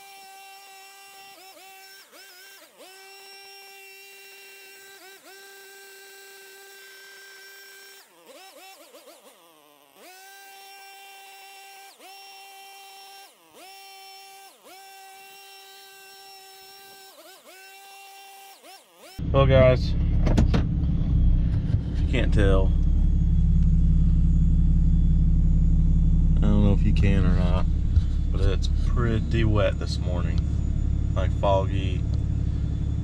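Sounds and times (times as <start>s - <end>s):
leaf blower whining: 0.0s - 33.0s.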